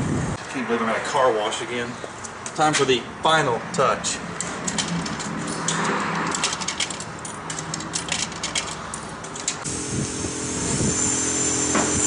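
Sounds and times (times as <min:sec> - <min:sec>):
machinery humming: 0:09.7 - 0:12.0.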